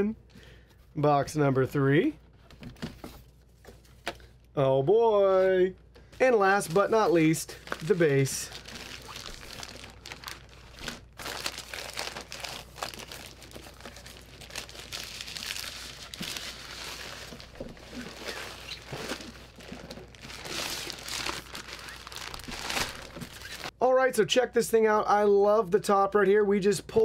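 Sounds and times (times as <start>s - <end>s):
plastic bag crinkling: 6.6s - 23.7s.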